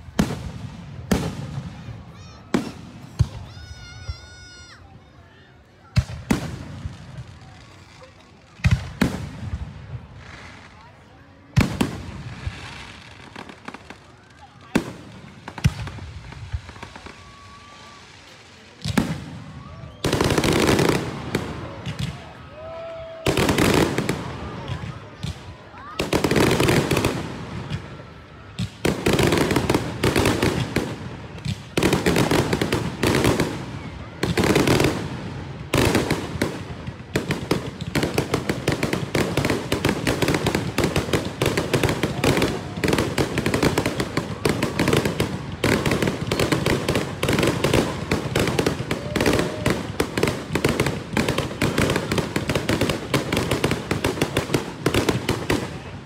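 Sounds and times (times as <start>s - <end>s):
fireworks booming: 0.0s - 4.4s, 23.2s - 56.0s
rapid fireworks crackling: 0.0s - 56.0s.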